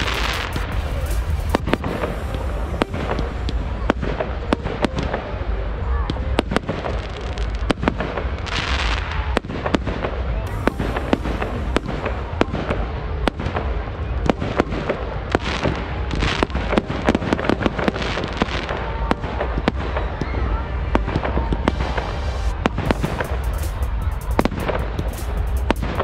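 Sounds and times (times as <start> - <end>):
fireworks hissing: 0.0 - 5.2, 10.5 - 19.0, 21.0 - 26.0
fireworks bangs and pops: 0.0 - 5.4, 6.0 - 26.0
low rumble: 0.0 - 6.5, 10.5 - 15.3, 19.2 - 26.0.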